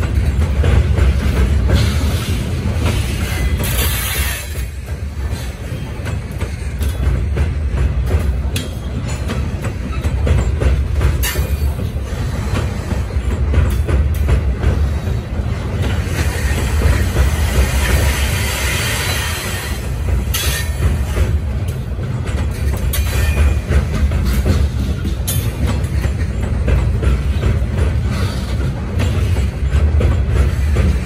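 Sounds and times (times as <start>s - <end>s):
freight train rumbling over bridge: 0.0s - 31.0s
wheels clacking over rail joints: 0.0s - 31.0s.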